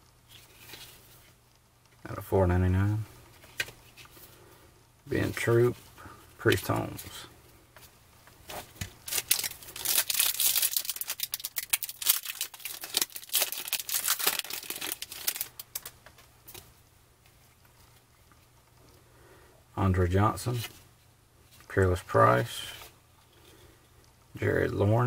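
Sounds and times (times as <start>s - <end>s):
foil wrapper tearing and crinkling: 9.0s - 16.0s.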